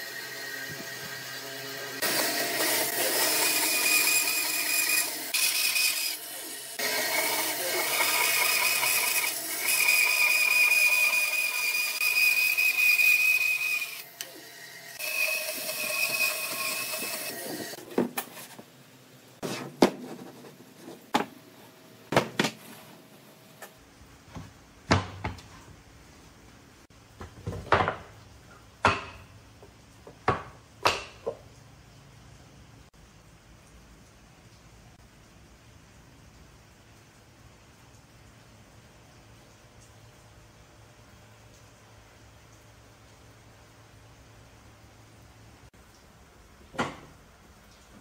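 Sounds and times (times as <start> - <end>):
bandsaw cutting wood: 0.8 - 17.8.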